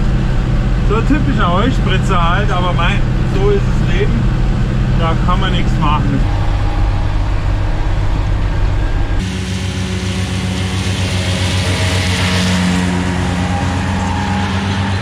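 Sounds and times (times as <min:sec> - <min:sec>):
tractor engine running: 0:00.0 - 0:15.0
hiss of mowers cutting grass: 0:09.2 - 0:14.9.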